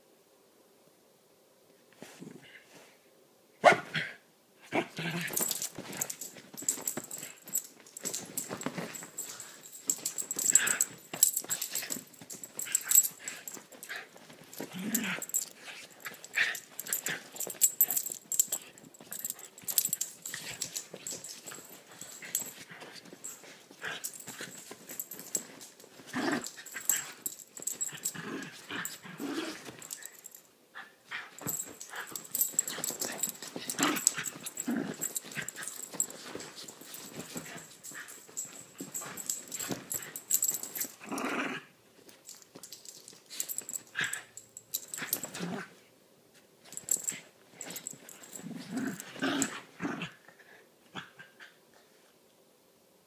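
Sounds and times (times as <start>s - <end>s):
dogs play growling: 3.9s - 45.8s, 46.7s - 51.6s
paws scuffling on bedding: 5.3s - 28.2s, 31.3s - 41.0s.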